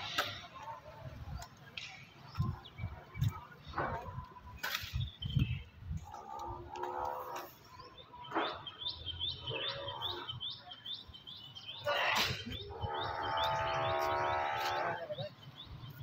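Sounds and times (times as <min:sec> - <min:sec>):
small bird chirping: 0:04.6 - 0:16.0.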